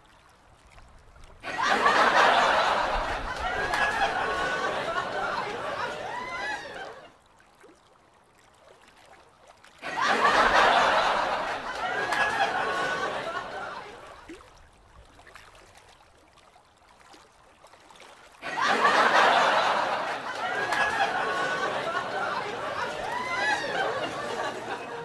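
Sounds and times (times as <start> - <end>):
people chattering: 1.4 - 7.1, 9.8 - 14.2, 18.4 - 25.0
people laughing: 1.4 - 7.1, 9.8 - 14.2, 18.4 - 25.0.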